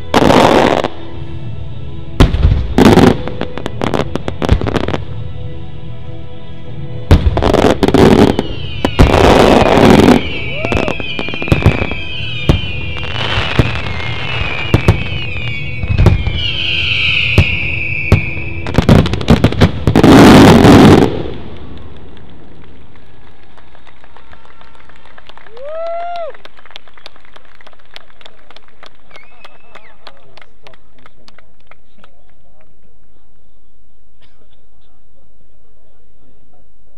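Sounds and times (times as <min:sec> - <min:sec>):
fireworks bursting: 0:02.2 - 0:05.2, 0:07.1 - 0:22.8
high wavering whistle: 0:08.2 - 0:18.7.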